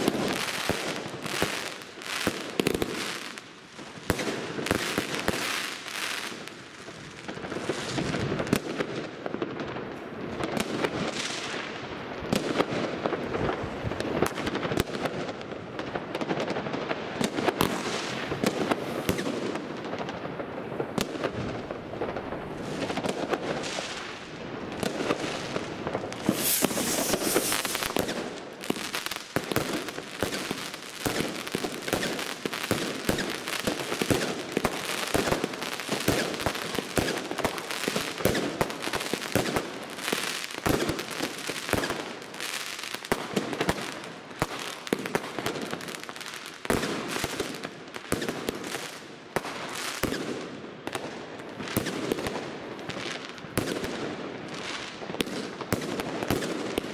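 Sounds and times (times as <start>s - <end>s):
fireworks banging and crackling: 0.0s - 56.9s.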